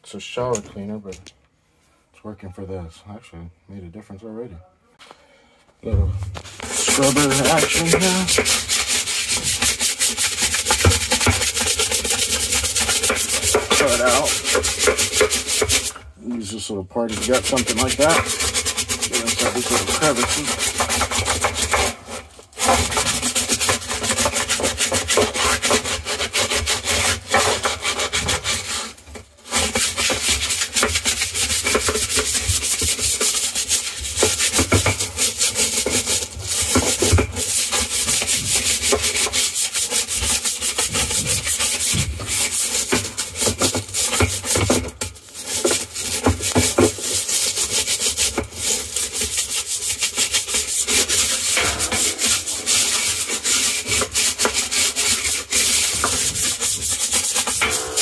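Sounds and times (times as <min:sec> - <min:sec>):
sponge scrubbing: 0:06.4 - 0:58.0.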